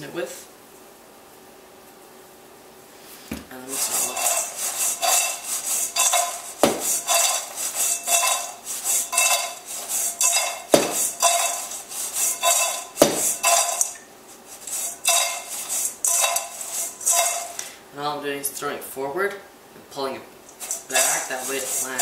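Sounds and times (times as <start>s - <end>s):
fries rattling in a metal bowl: 3.7s - 14.0s, 14.6s - 17.7s, 20.5s - 22.0s
sharp knocks: 6.6s - 7.0s, 10.7s - 11.1s, 13.0s - 13.4s.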